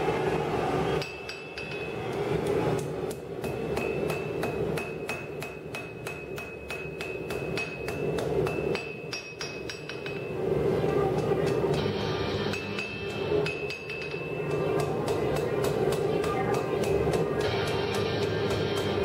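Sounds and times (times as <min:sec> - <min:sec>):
hammer striking steel on anvil: 0:01.0 - 0:10.5, 0:11.1 - 0:19.0
high ringing tone: 0:11.8 - 0:14.4.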